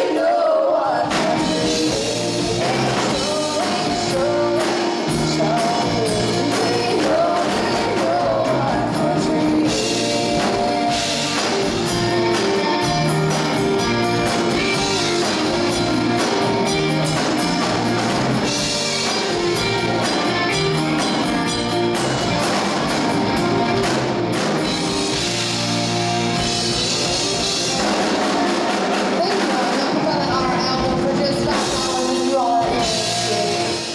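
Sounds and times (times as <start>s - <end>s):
woman singing: 0.0s - 11.6s, 29.3s - 33.9s
live rock band playing: 0.0s - 33.9s.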